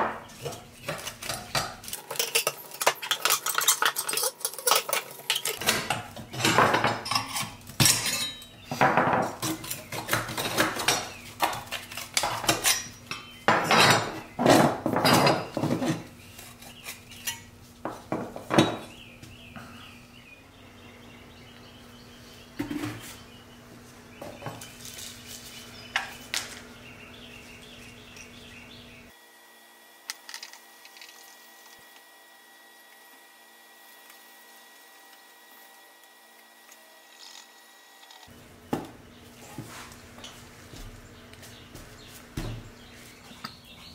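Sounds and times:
metal toy parts clanking: 0:01.9 - 0:08.4.

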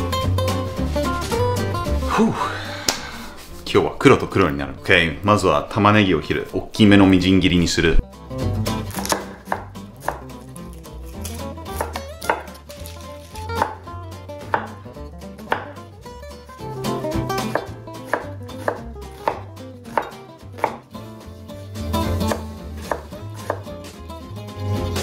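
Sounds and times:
knife chopping onion on board: 0:08.8 - 0:14.8, 0:15.4 - 0:15.8, 0:17.4 - 0:20.9, 0:22.1 - 0:23.9.

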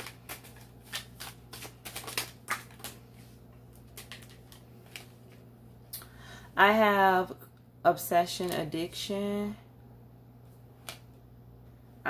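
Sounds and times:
cards being shuffled: 0:00.0 - 0:05.4.

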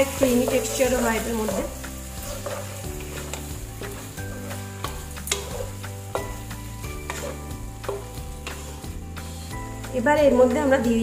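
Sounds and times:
spatula scraping frying pan: 0:00.0 - 0:09.8
background music: 0:00.0 - 0:11.0
food frying: 0:00.0 - 0:11.0.

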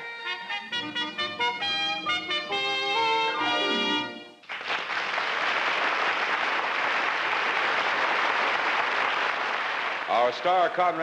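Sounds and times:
brass music cue: 0:00.0 - 0:04.4
audience applauding: 0:04.4 - 0:11.0.

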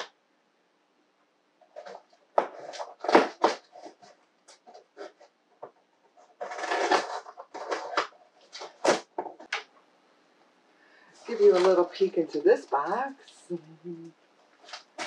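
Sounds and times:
rustling scrape: 0:01.7 - 0:05.3, 0:06.2 - 0:09.5, 0:11.2 - 0:12.2.

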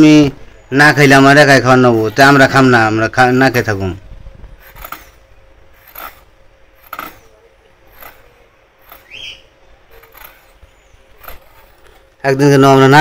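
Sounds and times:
short rising bird chirp: 0:08.9 - 0:11.7.

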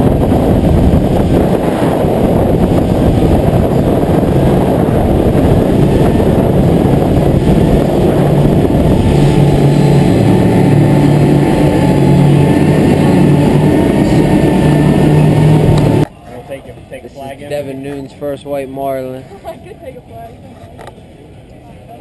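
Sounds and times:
rushing wake and spray: 0:00.0 - 0:16.1
wind buffeting microphone: 0:00.0 - 0:16.1
boat engine drone: 0:00.0 - 0:22.0.

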